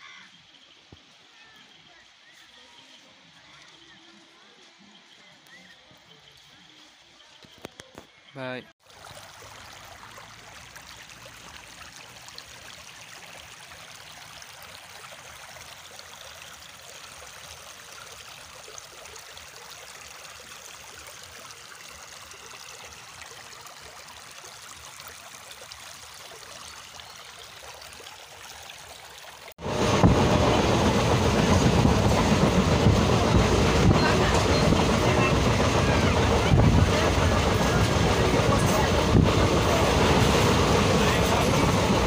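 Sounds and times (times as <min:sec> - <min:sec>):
river water flowing: 0:08.3 - 0:42.0
moving train heard from on board: 0:29.6 - 0:42.0.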